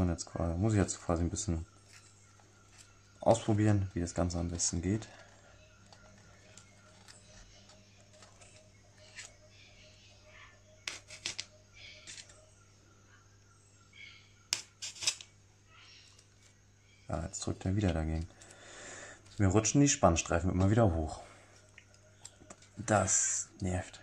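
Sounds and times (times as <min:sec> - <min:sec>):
fingers handling paper and pins: 0:05.1 - 0:09.3.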